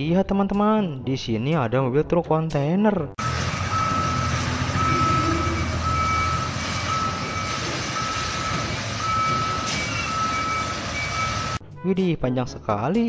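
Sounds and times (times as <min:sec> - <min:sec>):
diesel truck engine running: 0:03.2 - 0:11.6
reverse alarm beeping: 0:03.2 - 0:11.6.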